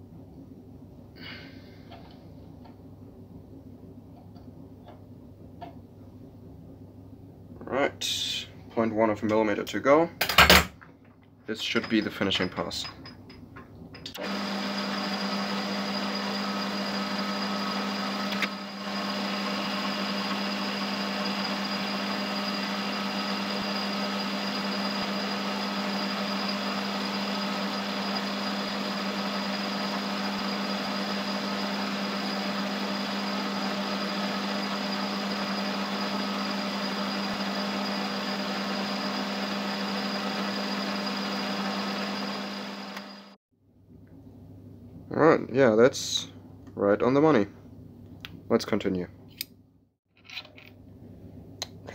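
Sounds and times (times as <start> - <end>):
metal lathe humming: 14.2 - 43.4.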